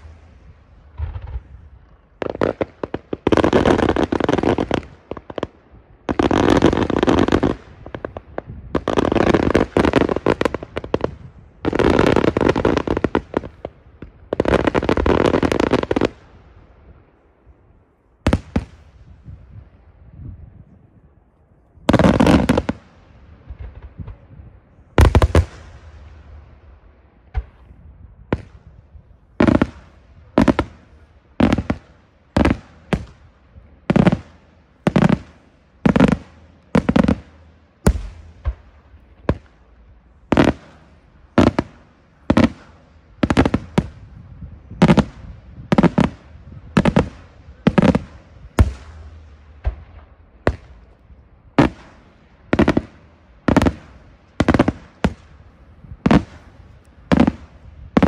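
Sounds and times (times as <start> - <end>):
fireworks bursting with echo: 0.0 - 20.2, 21.8 - 58.0.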